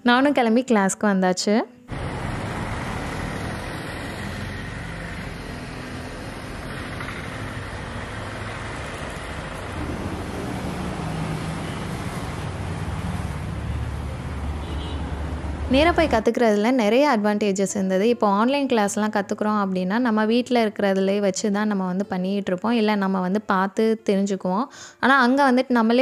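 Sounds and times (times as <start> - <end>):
low engine hum: 1.9 - 16.2
rumble of passing vehicles: 1.9 - 17.3.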